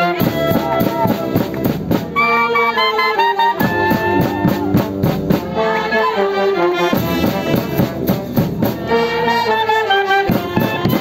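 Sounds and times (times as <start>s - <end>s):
steady drum beat: 0.0s - 2.2s, 3.6s - 5.6s, 6.9s - 9.1s, 10.2s - 11.0s
brass band playing folk tune: 0.0s - 11.0s.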